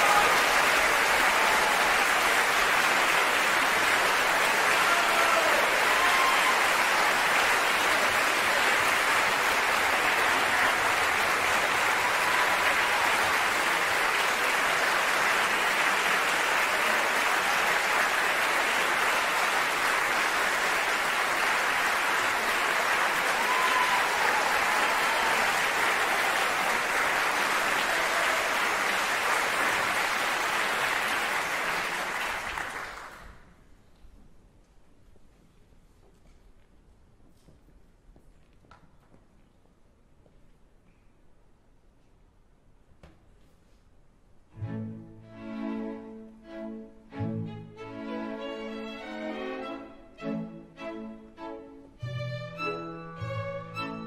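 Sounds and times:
audience applauding: 0:00.0 - 0:33.5.

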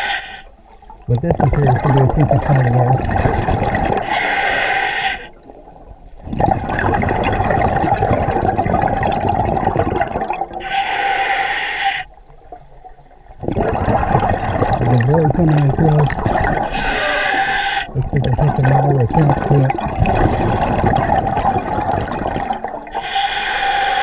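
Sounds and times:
diver inhaling through regulator: 0:00.0 - 0:00.5, 0:04.0 - 0:05.3, 0:10.6 - 0:12.1, 0:16.6 - 0:18.0, 0:22.9 - 0:24.0
exhaled bubbles burbling: 0:01.0 - 0:04.3, 0:05.3 - 0:10.7, 0:12.4 - 0:23.2.

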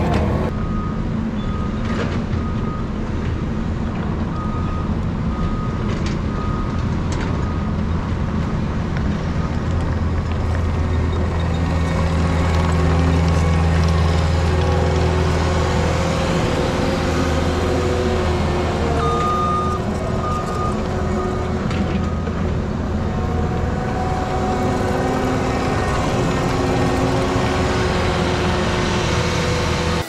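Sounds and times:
diesel engine running: 0:00.0 - 0:30.0
reversing alarm beeping: 0:00.5 - 0:02.9, 0:04.3 - 0:06.8, 0:19.0 - 0:21.4.

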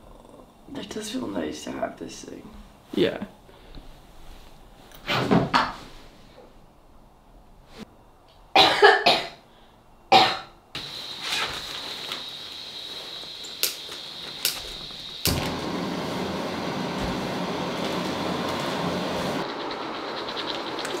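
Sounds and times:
person coughing: 0:08.6 - 0:09.4
steady hiss with high whine: 0:09.5 - 0:21.0.

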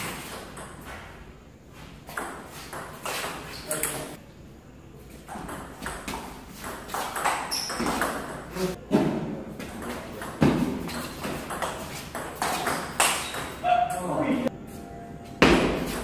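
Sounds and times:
table tennis ball knocking: 0:05.3 - 0:08.5.

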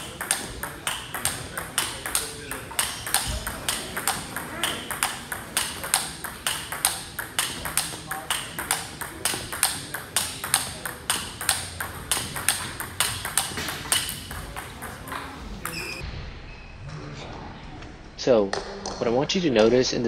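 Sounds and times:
ball bouncing on table: 0:00.0 - 0:16.0
ball clicking off rackets: 0:00.0 - 0:16.0.

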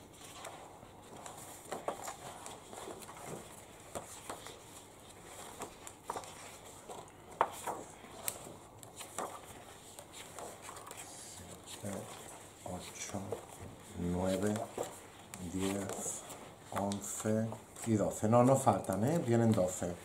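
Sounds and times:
paper rustling: 0:00.0 - 0:20.0
light taps on paper: 0:12.9 - 0:19.9.

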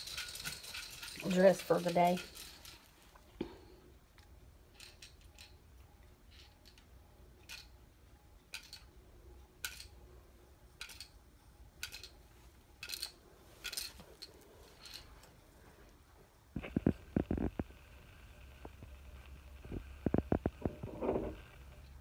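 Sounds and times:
plastic toy clicks: 0:11.8 - 0:12.2.

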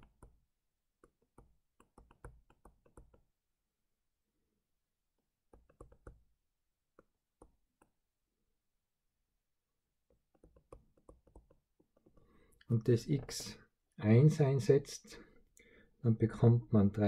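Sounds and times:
stylus pen tapping on tablet: 0:01.0 - 0:03.2, 0:10.1 - 0:12.2.

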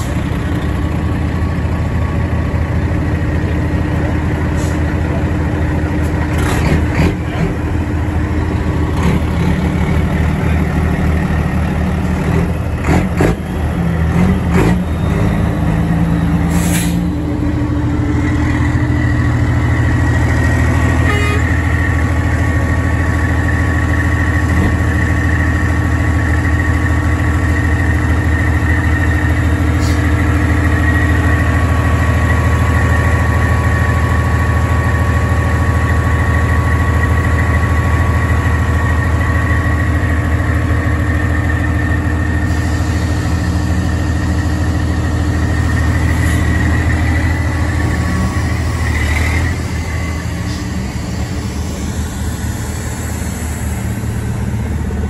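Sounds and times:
diesel engines idling: 0:00.0 - 0:55.0
short hisses: 0:16.5 - 0:17.1
steady high whine: 0:36.1 - 0:55.0.

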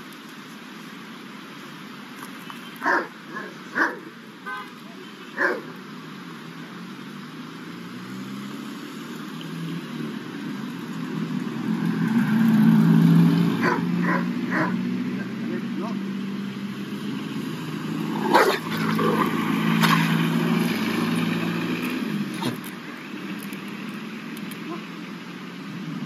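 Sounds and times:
dog barking: 0:02.8 - 0:04.1, 0:05.4 - 0:05.7, 0:13.6 - 0:14.8, 0:18.2 - 0:19.3
car passing: 0:05.2 - 0:26.0.

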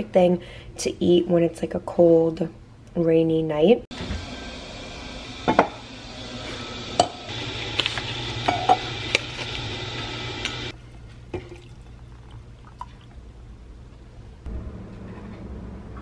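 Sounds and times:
packet rustling: 0:07.7 - 0:08.3
water pouring into glass mug: 0:11.3 - 0:13.2.

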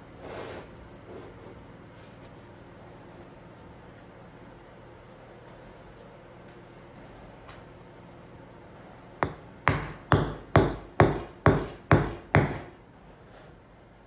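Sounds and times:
hammer striking metal into log: 0:09.2 - 0:12.7.

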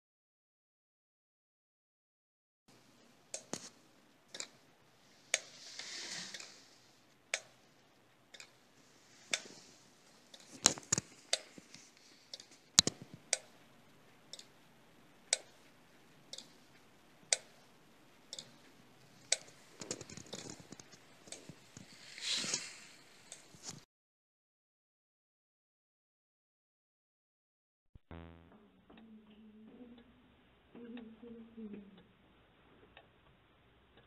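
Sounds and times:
soft hiss: 0:04.9 - 0:14.5, 0:20.8 - 0:23.8.

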